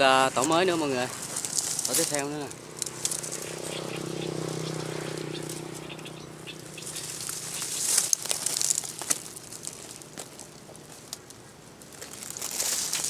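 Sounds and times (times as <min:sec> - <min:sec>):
bees buzzing: 0:00.0 - 0:10.2
dry grass rustling: 0:00.0 - 0:13.0.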